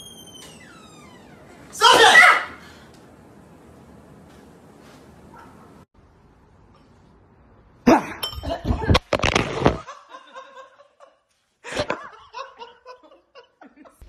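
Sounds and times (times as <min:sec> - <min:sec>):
person shrieking: 0:01.8 - 0:02.6
laughter: 0:09.8 - 0:14.0.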